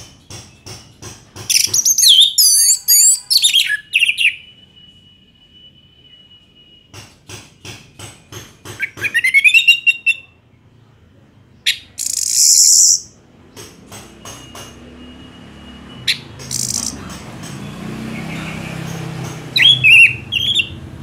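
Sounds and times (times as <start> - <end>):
harsh rasping bird calls: 1.5 - 4.5, 11.6 - 13.2, 16.1 - 20.9
thrush singing: 15.4 - 21.0.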